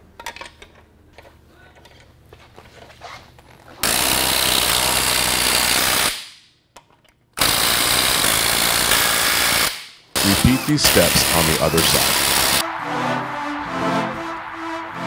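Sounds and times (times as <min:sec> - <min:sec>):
impact wrench bursts: 0:03.8 - 0:06.3, 0:07.4 - 0:12.6.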